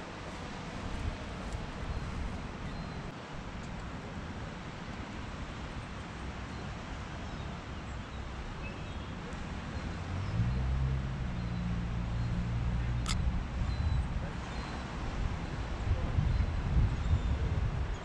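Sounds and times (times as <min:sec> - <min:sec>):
low engine hum: 0:09.4 - 0:14.5.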